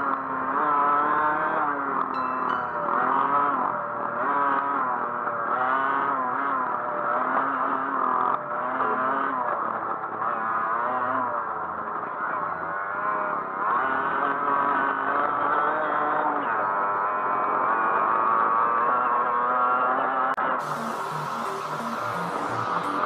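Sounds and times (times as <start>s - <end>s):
dirt bike engine revving: 3.0s - 9.3s, 17.6s - 23.0s.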